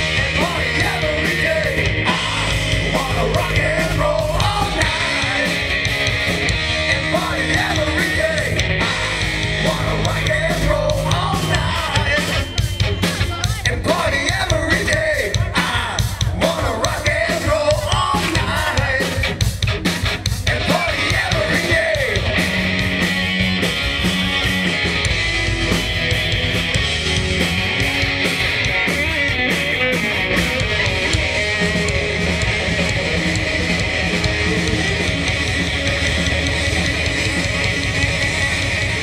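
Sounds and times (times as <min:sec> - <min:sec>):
live band playing: 0:00.0 - 0:39.0
steady drum beat: 0:00.0 - 0:39.0
person singing: 0:00.1 - 0:05.8, 0:06.9 - 0:08.6, 0:09.6 - 0:19.4, 0:20.4 - 0:22.4.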